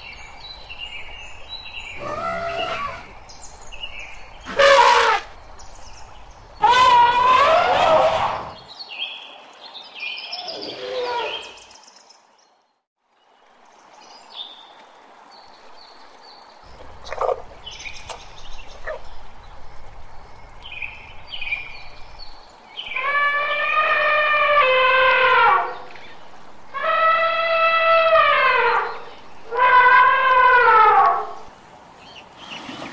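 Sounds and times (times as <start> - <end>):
small birds chirping: 15.8 - 23.0.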